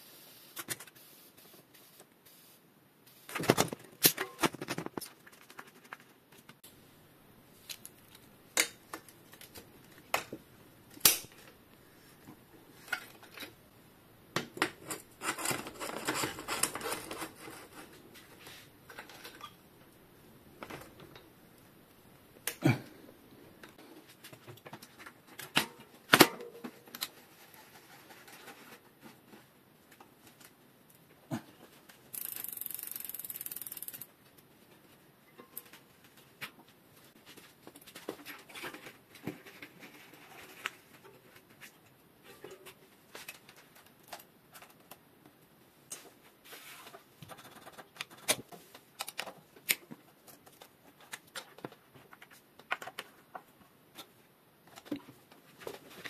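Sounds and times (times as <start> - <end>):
steady hiss: 0.0 - 3.4.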